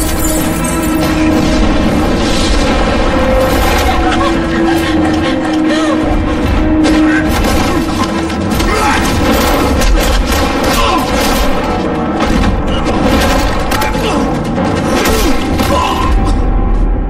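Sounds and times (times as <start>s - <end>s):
action soundtrack music: 0.0s - 17.0s
booms and crashing impacts: 6.4s - 16.8s.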